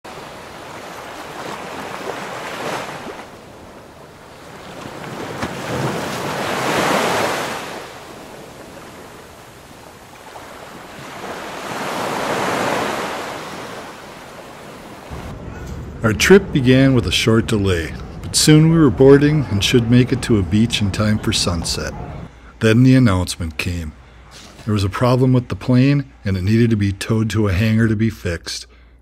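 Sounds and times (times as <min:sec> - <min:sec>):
ocean waves breaking: 0:00.0 - 0:26.8.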